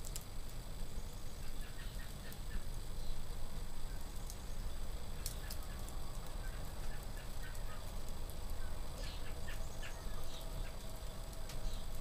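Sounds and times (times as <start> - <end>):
wood fire crackling: 0.0 - 12.0
birds calling: 1.0 - 3.3, 3.9 - 10.9.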